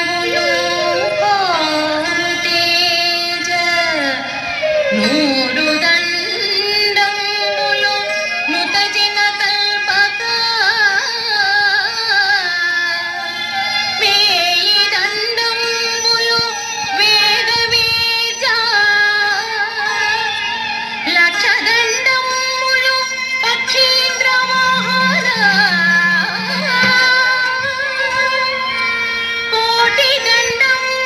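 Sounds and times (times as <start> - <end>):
woman singing ornamented melody: 0.0 - 4.2, 21.2 - 28.6
instrumental accompaniment: 0.0 - 12.4, 19.8 - 31.0.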